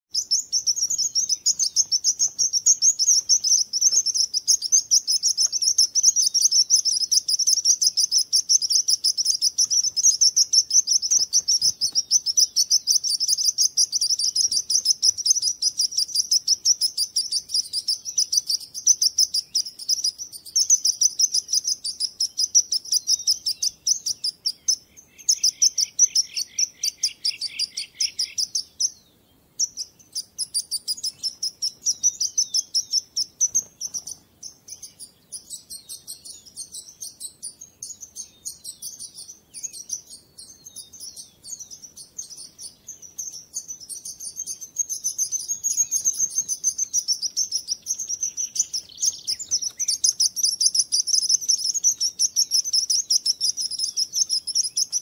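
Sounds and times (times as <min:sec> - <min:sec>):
lower chirps: 0:00.1 - 0:55.0
sparrows chirping: 0:00.1 - 0:55.0.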